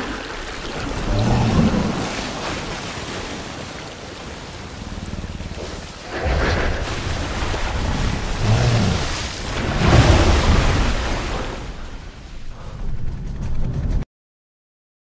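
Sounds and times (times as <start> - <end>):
water churning and splashing: 0.0 - 12.8
deep rumble: 4.6 - 14.0.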